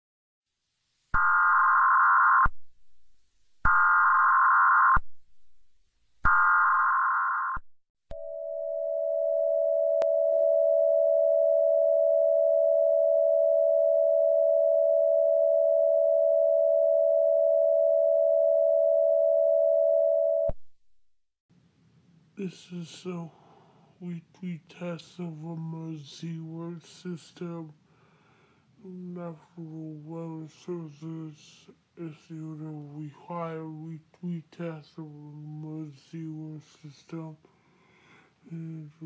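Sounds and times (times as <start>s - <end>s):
long steady attention tone: 8.1s - 20.6s.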